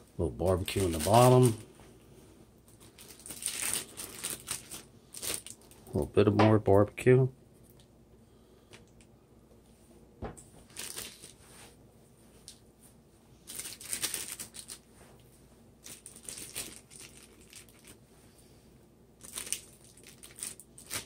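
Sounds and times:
plastic bag crinkling: 0.4s - 1.7s, 2.7s - 6.0s, 10.6s - 11.4s, 13.4s - 14.9s, 15.8s - 18.0s, 19.2s - 21.0s.

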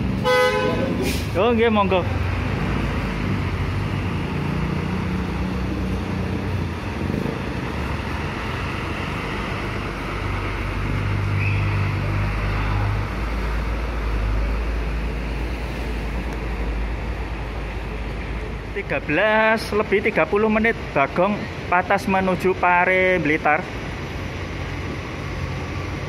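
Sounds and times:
bus diesel engine drone: 0.0s - 26.0s.

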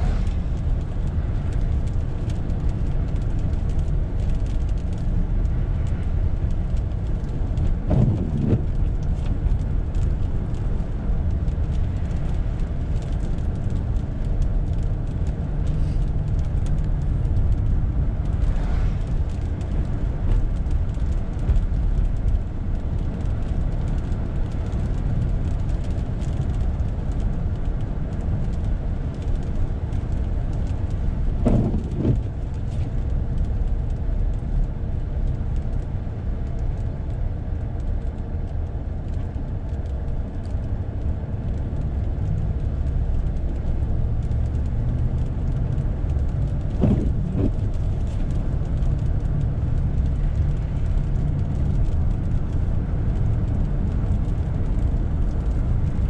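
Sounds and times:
car engine and tyre noise: 0.0s - 56.0s
windshield wiper sweeping: 7.9s - 8.7s, 31.4s - 32.9s, 46.8s - 47.8s.

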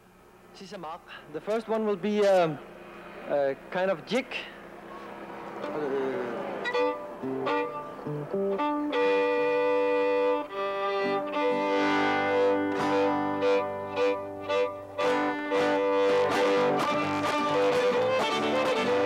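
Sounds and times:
strummed guitar: 5.5s - 19.0s
fiddle playing a jig: 5.6s - 19.0s.

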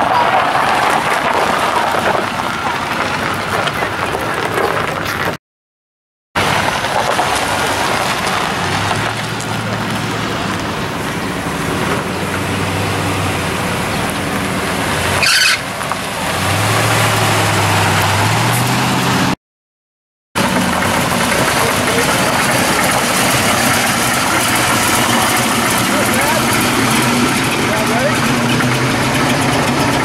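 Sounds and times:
exposed engine driving by: 6.4s - 19.4s, 20.4s - 30.0s
pickup truck engine passing: 6.4s - 19.4s, 20.4s - 30.0s.

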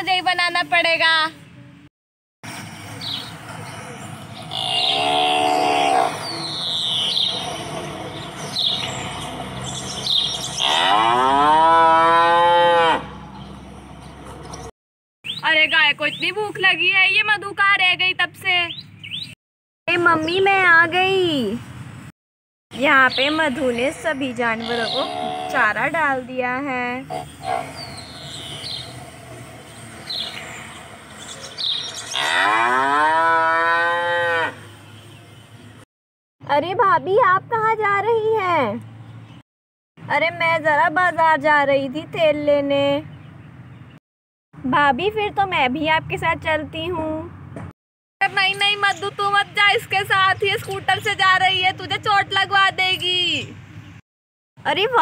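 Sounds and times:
birds chirping: 2.9s - 11.4s, 13.2s - 17.4s, 18.4s - 19.4s, 22.8s - 33.0s, 34.2s - 35.8s, 43.0s - 44.0s
cow mooing: 4.5s - 6.3s, 10.6s - 13.2s, 24.6s - 25.7s, 32.1s - 34.7s.

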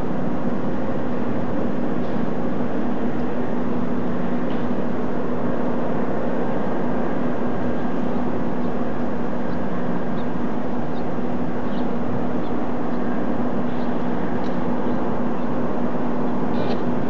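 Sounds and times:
diesel locomotive engine humming: 0.0s - 17.0s.

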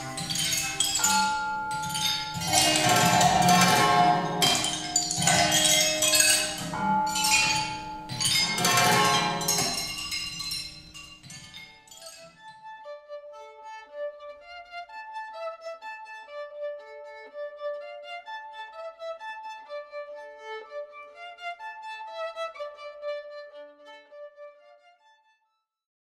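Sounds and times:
violin playing short notes: 1.4s - 7.0s.

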